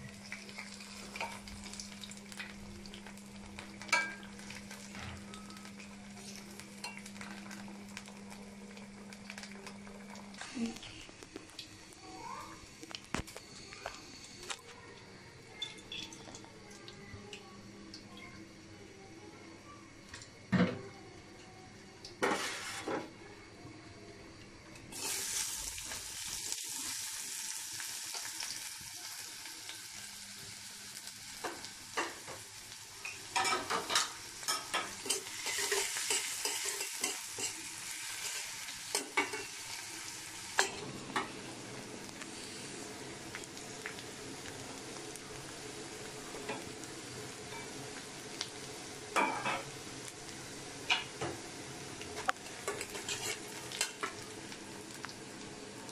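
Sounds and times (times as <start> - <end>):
onions sizzling in hot oil: 0.0 - 14.6, 21.7 - 23.2, 24.8 - 55.9
metal spatula scraping a pan: 22.2 - 23.0, 52.7 - 53.9.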